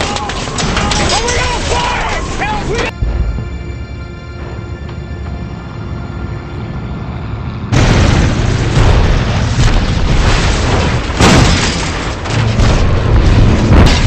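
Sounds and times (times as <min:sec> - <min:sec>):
explosions and blasts: 0:07.7 - 0:14.0.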